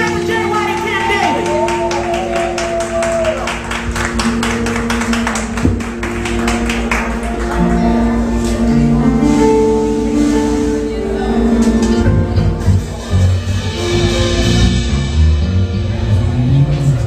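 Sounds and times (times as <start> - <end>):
keyboard chords: 0.0 - 17.0
bass pulse: 3.0 - 17.0.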